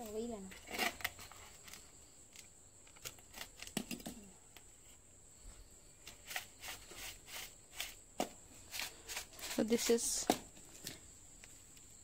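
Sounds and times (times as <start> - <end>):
hands rustling potting soil: 5.9 - 11.9.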